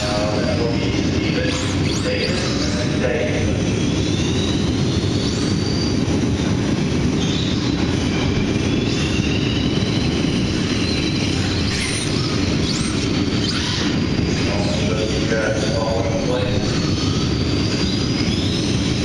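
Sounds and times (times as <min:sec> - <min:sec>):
steady dense rumble: 0:00.0 - 0:19.0
rc truck motors whining: 0:08.5 - 0:14.8.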